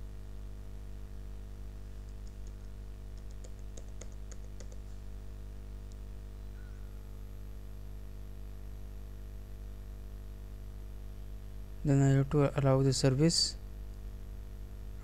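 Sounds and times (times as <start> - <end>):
low electrical hum: 0.0 - 15.0
keyboard keys clicking: 2.0 - 4.8.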